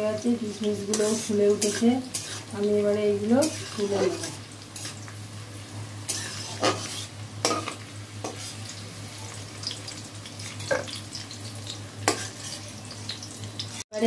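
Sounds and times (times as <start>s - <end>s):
nuts sizzling in hot oil: 0.0s - 14.0s
metal spatula scraping pan: 0.9s - 2.5s, 3.4s - 5.0s, 6.1s - 8.6s, 12.0s - 12.7s.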